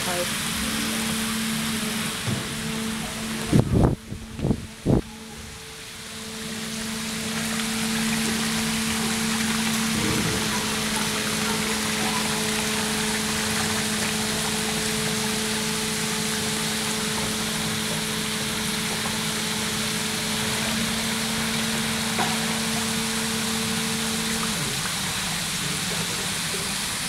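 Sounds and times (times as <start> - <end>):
water rushing and splashing: 0.0 - 27.0
low hum: 0.2 - 17.4.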